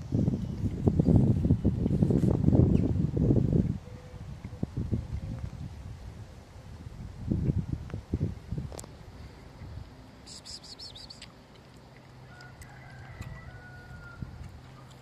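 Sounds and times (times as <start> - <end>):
birds chirping: 10.2 - 12.1.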